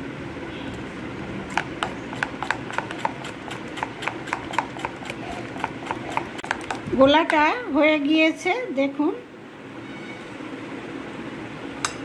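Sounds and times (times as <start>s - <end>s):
spoon beating batter: 1.5s - 7.5s.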